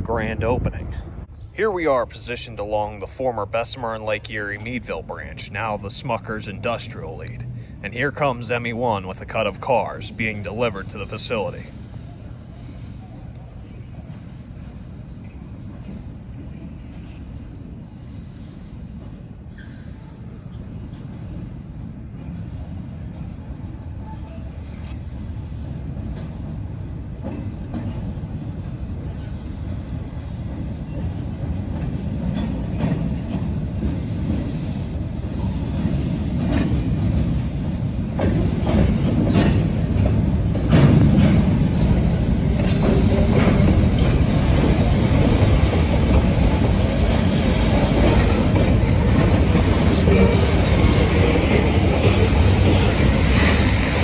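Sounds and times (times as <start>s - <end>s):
freight train rumble: 0.0s - 54.0s
wheels clicking over rail joints: 29.7s - 54.0s.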